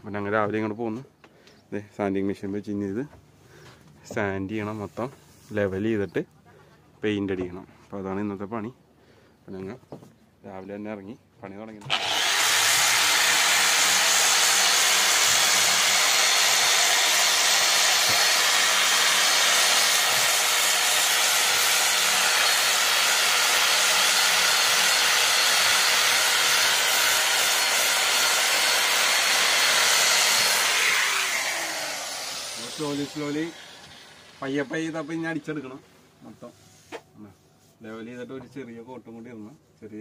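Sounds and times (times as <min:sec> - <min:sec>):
electric sander grinding: 0:11.8 - 0:35.6.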